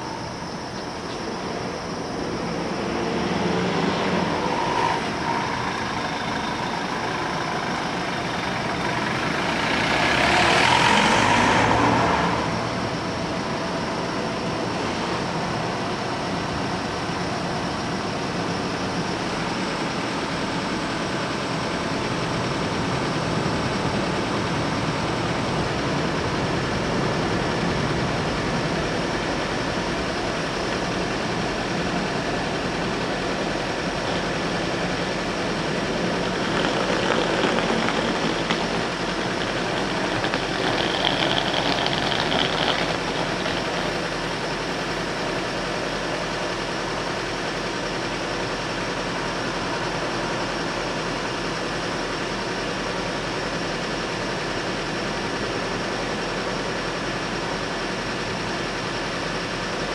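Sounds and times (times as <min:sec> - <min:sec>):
car engines idling: 0:05.0 - 0:11.1, 0:28.3 - 0:51.7.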